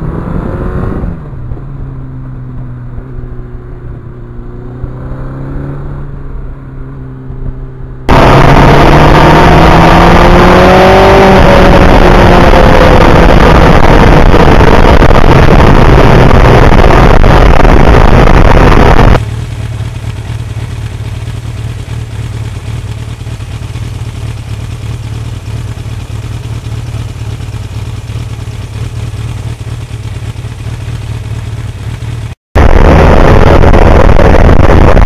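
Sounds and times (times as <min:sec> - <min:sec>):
motorcycle engine at speed: 0:00.0 - 0:35.0
wind noise: 0:08.1 - 0:19.2, 0:32.6 - 0:35.0
motorcycle engine idling: 0:19.2 - 0:32.4.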